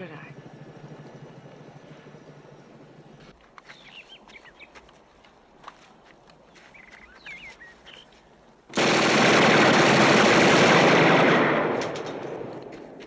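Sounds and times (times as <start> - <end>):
faint bird chirps: 0.0 - 4.8, 6.5 - 8.3
submachine gun automatic fire: 8.7 - 12.8.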